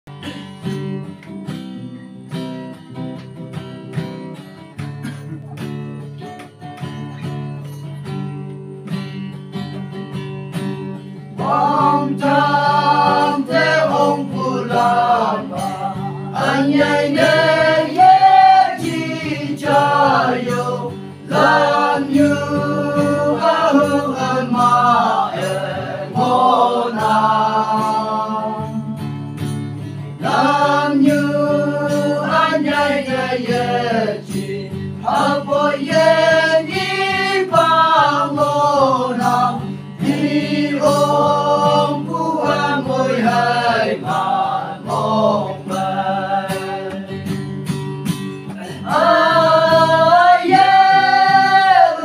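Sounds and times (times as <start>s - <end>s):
guitars strumming: 0.1s - 52.0s
men singing a hymn: 11.4s - 29.1s, 30.2s - 47.4s, 48.6s - 52.0s.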